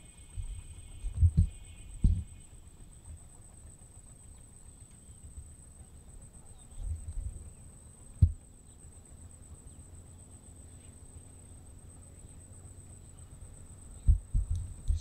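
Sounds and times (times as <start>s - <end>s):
steady high-pitched whine: 0.0s - 15.0s
low rumbling bump: 14.0s - 15.0s.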